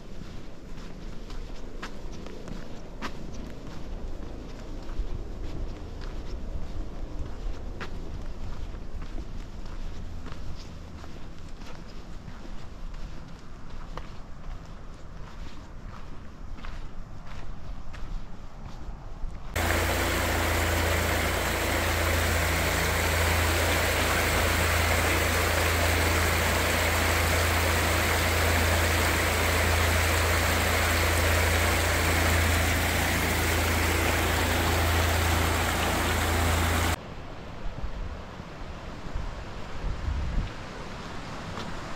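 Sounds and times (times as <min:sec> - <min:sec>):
footsteps on dirt trail: 0:00.0 - 0:18.9
steady low rumble: 0:19.3 - 0:37.0
creek rushing over stones: 0:19.6 - 0:37.0.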